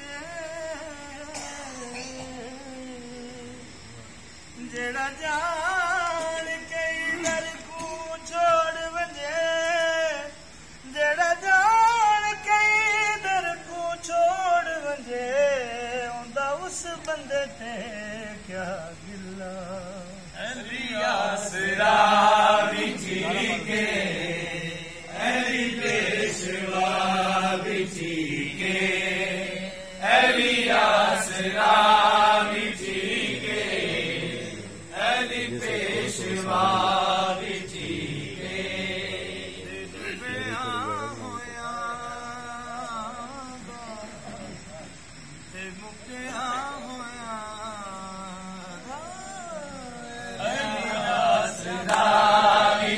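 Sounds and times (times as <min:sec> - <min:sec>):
group of voices singing: 0:17.0 - 0:44.7, 0:49.6 - 0:52.9.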